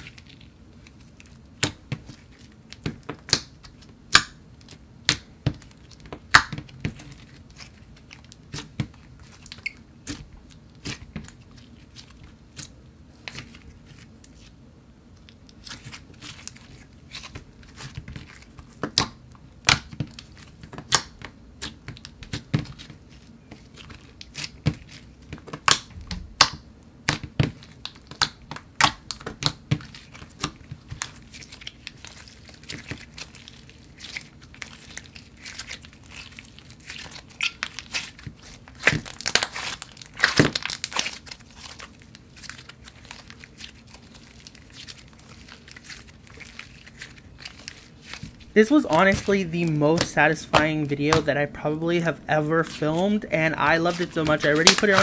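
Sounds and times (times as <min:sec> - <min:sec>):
slime squishing and popping: 0:01.6 - 0:11.4, 0:15.6 - 0:22.9, 0:23.8 - 0:51.3, 0:53.8 - 0:55.0.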